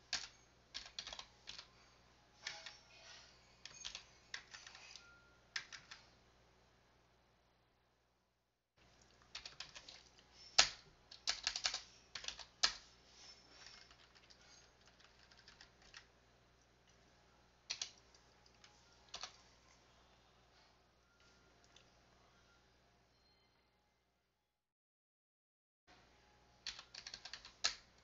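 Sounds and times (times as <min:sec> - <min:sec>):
keyboard typing: 0:00.0 - 0:01.7, 0:02.4 - 0:02.9, 0:03.6 - 0:06.1, 0:09.0 - 0:12.8, 0:13.6 - 0:16.1, 0:17.7 - 0:19.5, 0:26.6 - 0:27.9.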